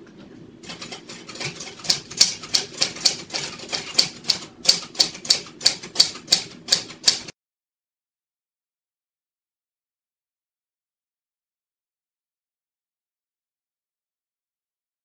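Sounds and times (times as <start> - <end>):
typewriter keys clacking: 0.7 - 7.3.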